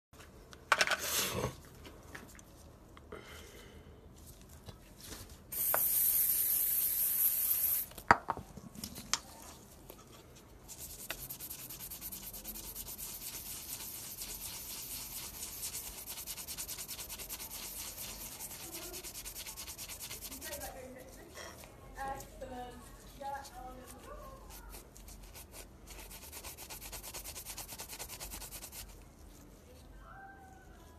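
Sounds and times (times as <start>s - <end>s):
loud steady hiss: 5.6s - 7.9s
scouring pad scrubbing metal: 10.7s - 21.2s.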